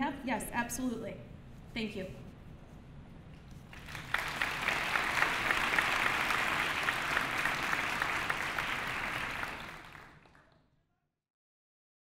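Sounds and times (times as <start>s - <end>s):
audience applauding: 3.7s - 10.6s.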